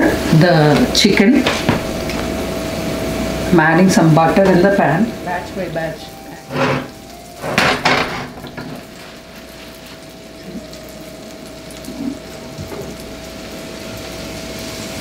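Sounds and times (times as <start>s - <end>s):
butter sizzling in skillet: 0.0s - 15.0s
cookware clanking on stove: 6.4s - 8.9s.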